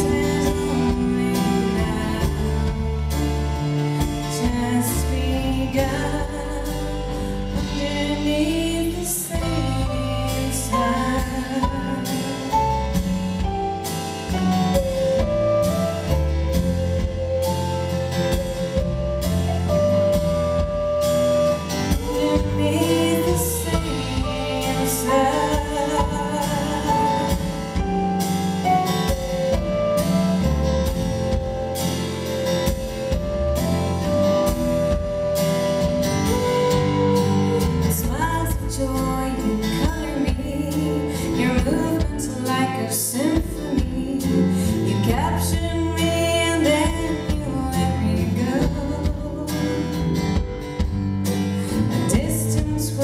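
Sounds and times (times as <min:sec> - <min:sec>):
woman singing: 0:00.0 - 0:15.8, 0:21.7 - 0:28.0, 0:36.4 - 0:50.6, 0:51.6 - 0:53.0
acoustic guitar: 0:00.0 - 0:53.0
bass guitar: 0:00.0 - 0:53.0
drum kit with cymbal strokes: 0:00.0 - 0:53.0.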